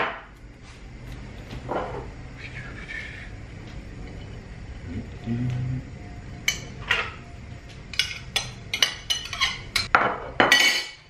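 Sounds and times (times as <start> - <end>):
metal utensil scraping dishes: 7.9 - 9.9.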